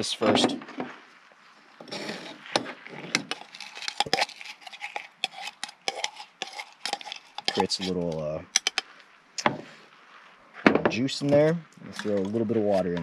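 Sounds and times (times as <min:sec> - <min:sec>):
muddler knocking and scraping cup: 0:01.8 - 0:08.9.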